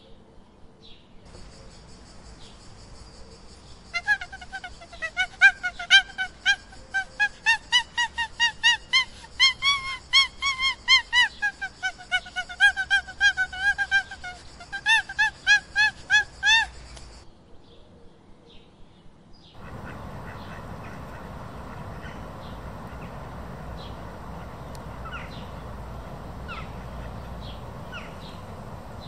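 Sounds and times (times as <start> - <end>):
animal honking calls: 19.6 - 29.0.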